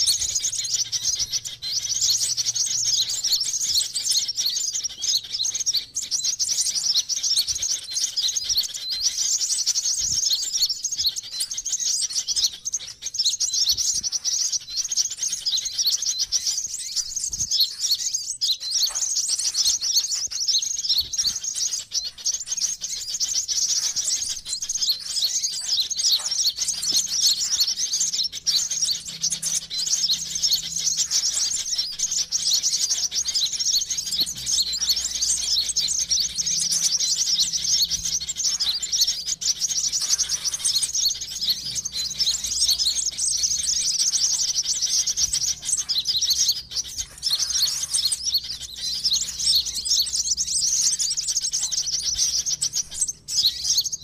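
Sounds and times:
high-pitched bird chirping: 0:00.0 - 0:54.0.

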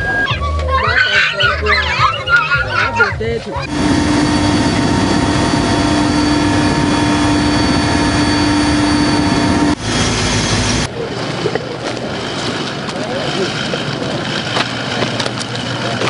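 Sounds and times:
outdoor background noise: 0:00.0 - 0:16.0
aircraft engine hum: 0:03.5 - 0:16.0.

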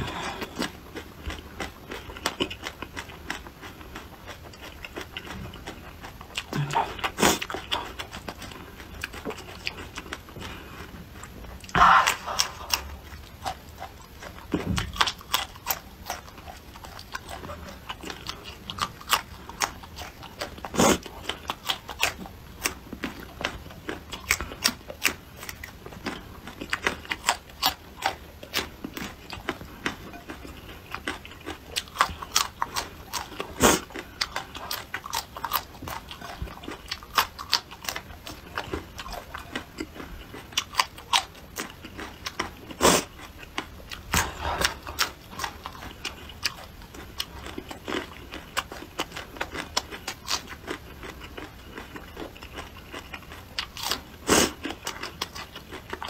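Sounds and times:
chewing and crunching: 0:00.0 - 0:56.0.

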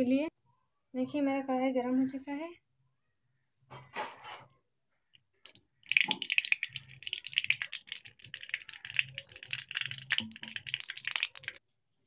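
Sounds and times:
hot oil crackling and spitting: 0:05.4 - 0:11.6.

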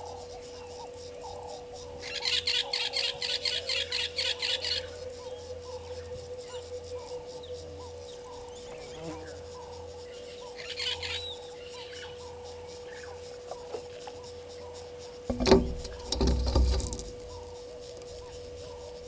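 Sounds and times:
steady hum: 0:00.0 - 0:19.0
bird call: 0:00.7 - 0:12.3.

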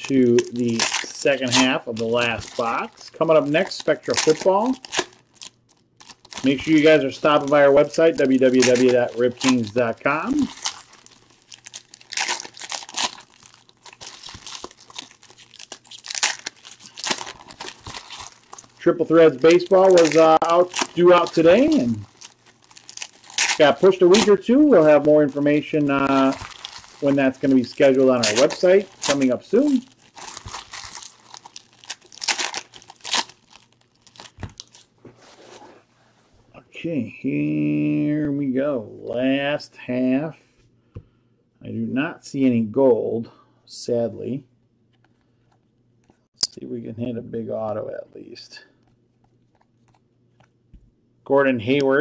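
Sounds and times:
plastic wrapper crinkling: 0:00.0 - 0:35.0, 0:48.8 - 0:50.6.

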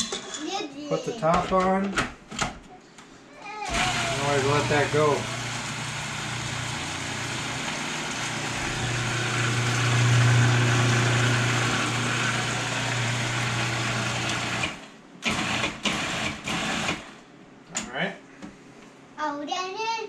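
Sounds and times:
food processor motor running: 0:03.7 - 0:17.2.

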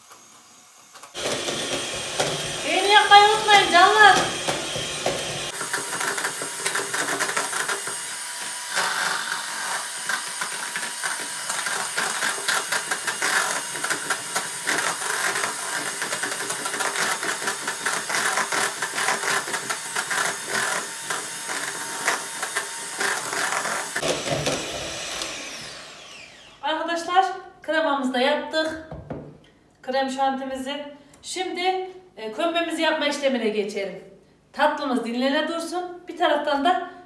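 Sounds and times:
hand mixer motor running: 0:00.0 - 0:26.6.

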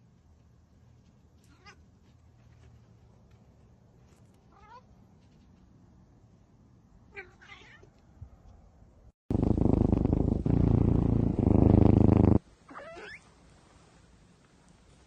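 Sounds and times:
cat meowing: 0:07.2 - 0:07.9
kitten purring: 0:09.3 - 0:12.4.

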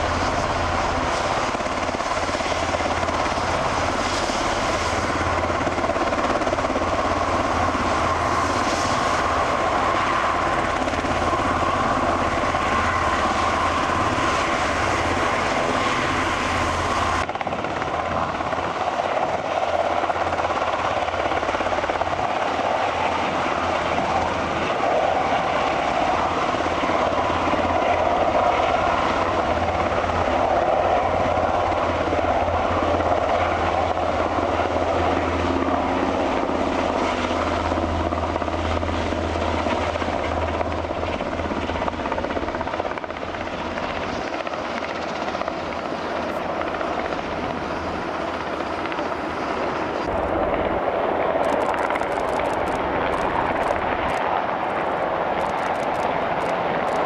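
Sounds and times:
helicopter rotors: 0:00.0 - 0:57.0
helicopter turbine whine: 0:00.0 - 0:57.0.

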